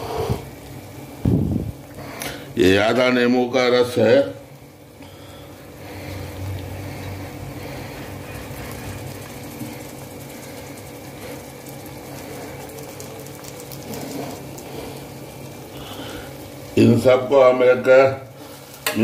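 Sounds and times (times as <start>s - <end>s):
steady low hum: 0.0s - 19.0s
food sizzling in a pan: 5.6s - 19.0s.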